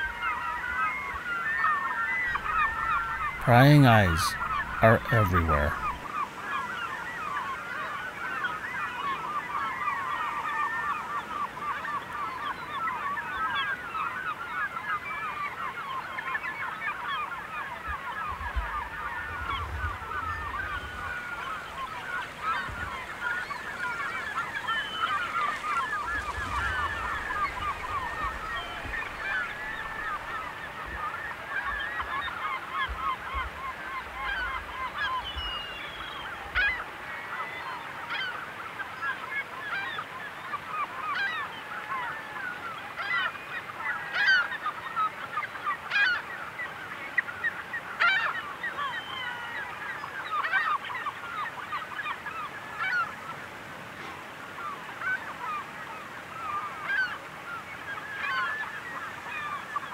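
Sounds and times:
eagles chattering calls: 0:00.2 - 0:07.0.

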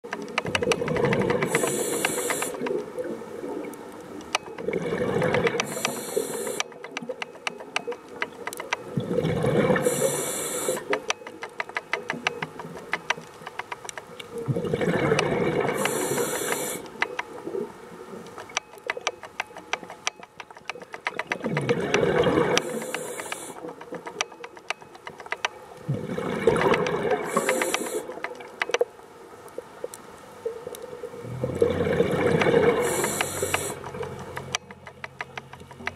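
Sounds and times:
crackle of fast clicks underwater: 0:00.0 - 0:35.9
diver breathing through regulator: 0:01.4 - 0:02.7, 0:04.9 - 0:06.8, 0:09.2 - 0:11.0, 0:15.1 - 0:16.9, 0:22.2 - 0:23.8, 0:27.2 - 0:28.2, 0:32.6 - 0:33.9
exhaled bubbles rushing: 0:04.6 - 0:05.6, 0:08.9 - 0:10.1, 0:14.3 - 0:16.3, 0:21.4 - 0:22.9, 0:25.9 - 0:27.5, 0:31.2 - 0:33.6.

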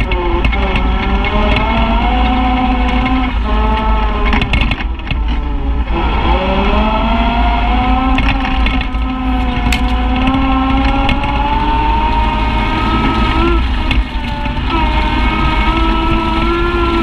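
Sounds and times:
utility vehicle engine: 0:00.0 - 0:17.0
vehicle rattling over bumps: 0:00.0 - 0:17.0.

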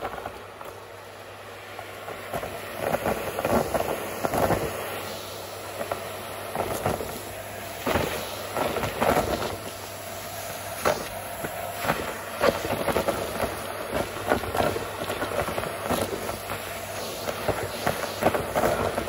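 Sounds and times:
vacuum cleaner running: 0:00.0 - 0:19.0.

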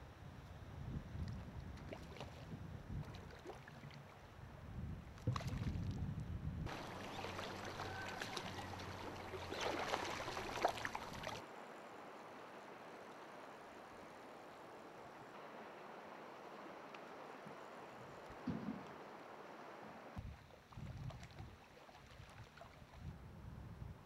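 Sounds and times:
wind rumble on microphone: 0:00.0 - 0:07.8, 0:18.0 - 0:19.0, 0:20.2 - 0:24.0
small water splashes: 0:01.3 - 0:04.3, 0:05.2 - 0:06.0, 0:06.7 - 0:11.5, 0:20.2 - 0:23.1
flowing river water: 0:01.8 - 0:04.4, 0:06.7 - 0:23.1
water moving around legs: 0:06.7 - 0:11.4.

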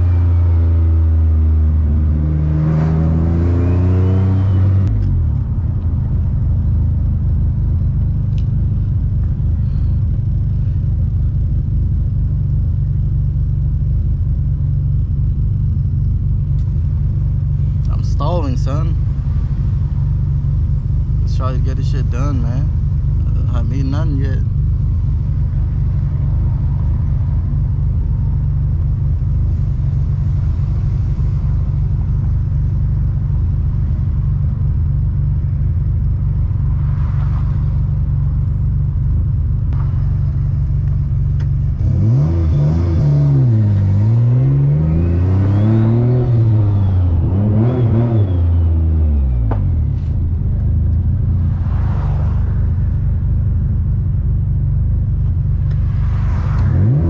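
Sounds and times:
car engine from inside cabin: 0:00.0 - 0:57.0
faint high turbo whistle: 0:03.4 - 0:04.9.

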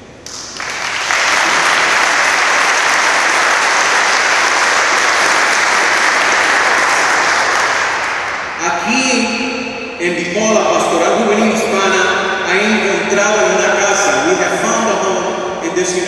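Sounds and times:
audience applauding: 0:00.2 - 0:08.6.

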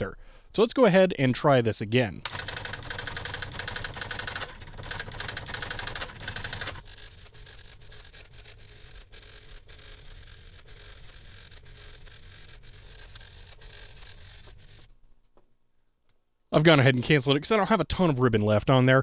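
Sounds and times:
daisy-wheel typewriter printing: 0:02.2 - 0:14.9.

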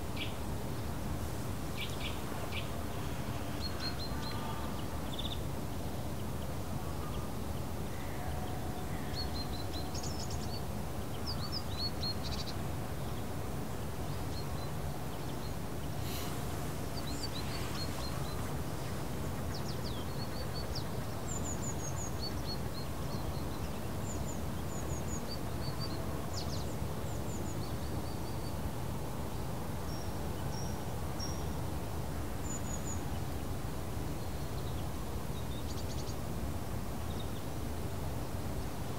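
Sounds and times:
small birds chirping: 0:14.1 - 0:26.7
brief hiss: 0:16.0 - 0:18.5.

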